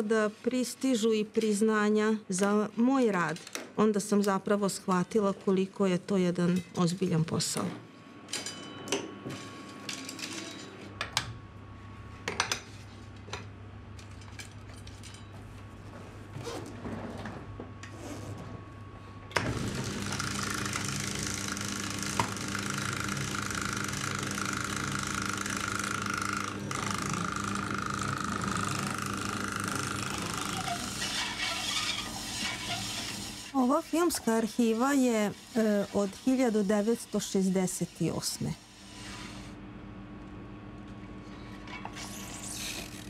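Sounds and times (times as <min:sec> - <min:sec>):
editing table motors humming: 0:19.3 - 0:43.0.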